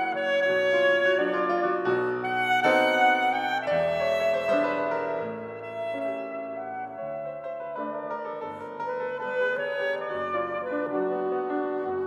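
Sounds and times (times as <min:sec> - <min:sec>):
piano accompaniment: 0:00.0 - 0:12.0
saxophone melody: 0:00.0 - 0:12.0.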